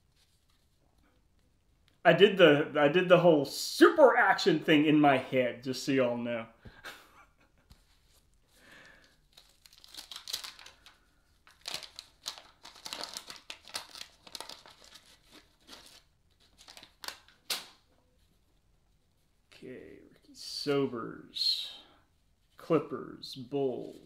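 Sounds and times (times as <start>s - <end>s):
paper wrapper crinkling and tearing: 9.0s - 17.8s.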